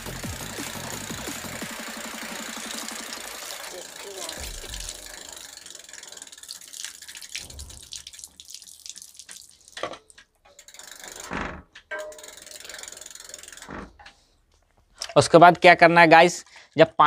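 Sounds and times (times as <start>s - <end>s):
water splashing on brake rotor: 0.0s - 14.3s
bicycle freewheel ticking: 0.0s - 14.4s
sharp knocks: 4.4s - 5.2s.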